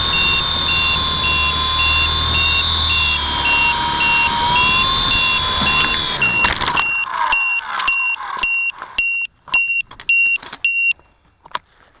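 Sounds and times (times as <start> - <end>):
helicopter hitting ground: 0.0 - 7.0
toy helicopter rotor whine: 0.0 - 9.0
high electronic beep: 0.0 - 11.0.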